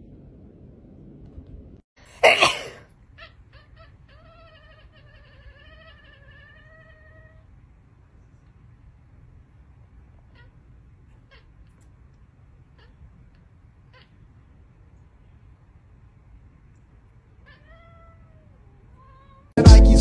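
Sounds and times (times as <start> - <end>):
cat meowing: 3.1 - 7.5, 10.2 - 11.9, 12.6 - 14.6, 17.3 - 19.6.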